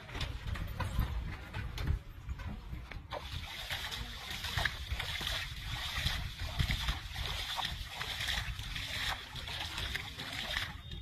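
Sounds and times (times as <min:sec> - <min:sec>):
fish splashing in water: 0:03.1 - 0:11.0.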